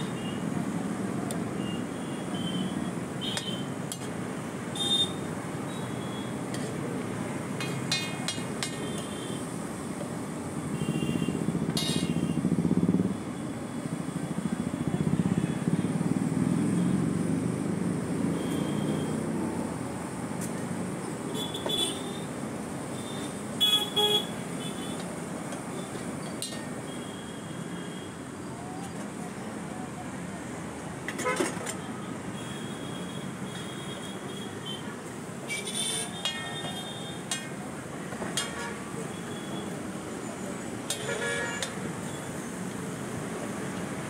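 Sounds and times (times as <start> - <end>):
vehicle engines rumbling past: 2.7 - 21.3.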